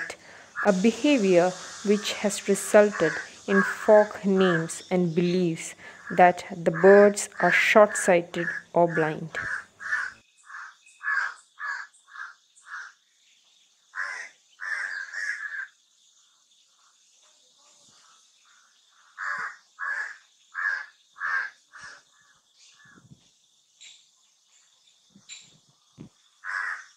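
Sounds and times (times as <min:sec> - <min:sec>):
harsh bird calls: 0:00.0 - 0:13.0, 0:13.9 - 0:15.8, 0:17.9 - 0:23.2, 0:25.1 - 0:26.9.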